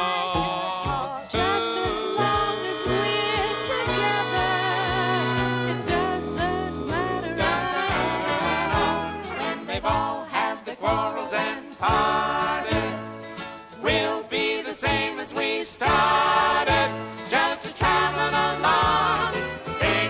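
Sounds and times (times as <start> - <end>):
adults and children singing: 0.0 - 13.1, 13.8 - 20.0
piano accompaniment: 1.3 - 15.1, 15.8 - 20.0.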